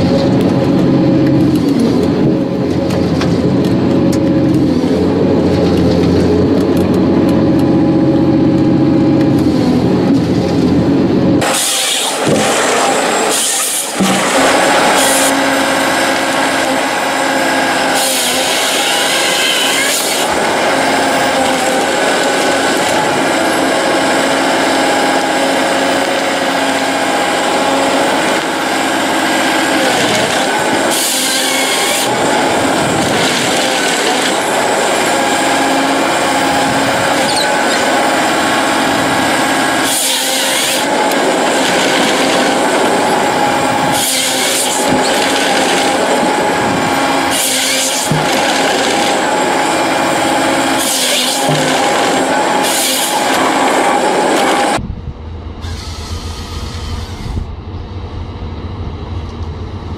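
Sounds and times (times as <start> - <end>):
engine and hydraulic whine: 0.0 - 59.9
chainsaw cutting logs: 11.4 - 54.8.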